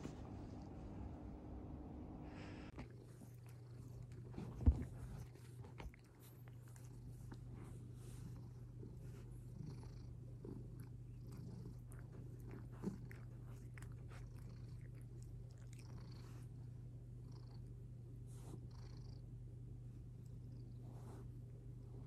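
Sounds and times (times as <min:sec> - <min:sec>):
cat purring: 0:00.0 - 0:22.0.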